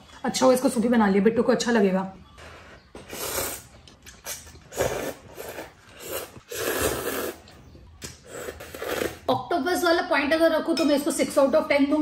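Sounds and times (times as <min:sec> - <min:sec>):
noodles being slurped: 0:03.0 - 0:09.3.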